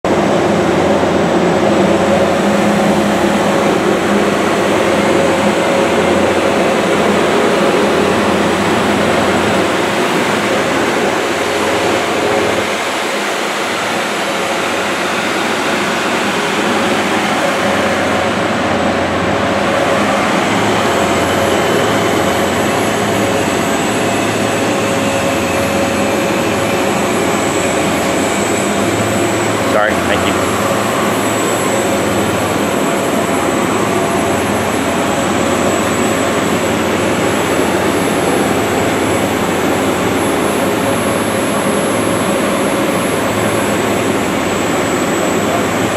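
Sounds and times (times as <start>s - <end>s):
high-pitched turbine whine: 0.0s - 45.9s
jet turbine drone: 0.0s - 45.9s.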